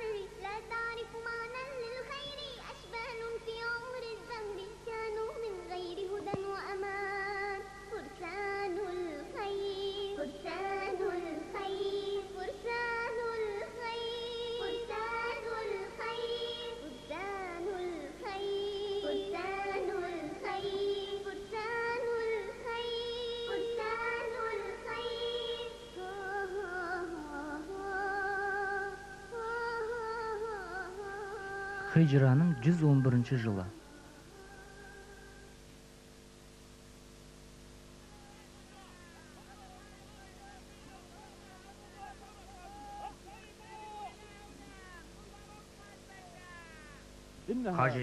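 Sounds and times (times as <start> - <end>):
high voice singing with vibrato: 0.0 - 35.6.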